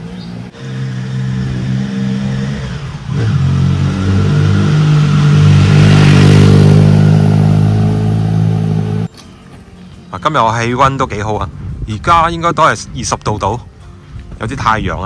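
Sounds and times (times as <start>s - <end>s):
vehicle engine droning: 0.0s - 9.1s.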